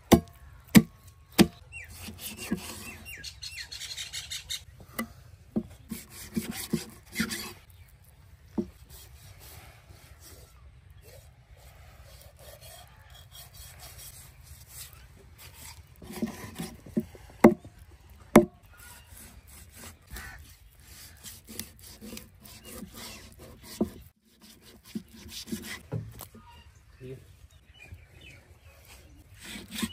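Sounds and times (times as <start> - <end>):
cleaver chopping into wood: 0.0 - 1.6, 18.3 - 18.6
knife scraping fish: 5.8 - 7.7, 11.0 - 17.2, 18.7 - 26.3, 28.8 - 29.9.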